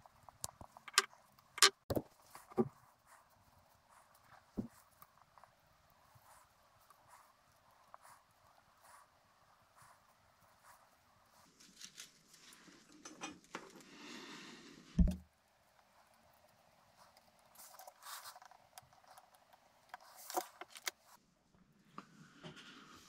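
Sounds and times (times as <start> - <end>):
hands handling wires and connectors: 0.2 - 2.8, 17.6 - 21.0
low thump: 15.0 - 15.2.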